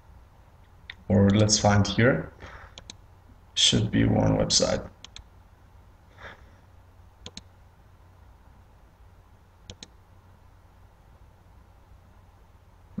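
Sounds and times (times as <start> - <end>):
faint low hum: 0.0 - 13.0
soft breath: 2.4 - 2.8
computer mouse double-clicking: 7.2 - 7.5, 9.7 - 9.9.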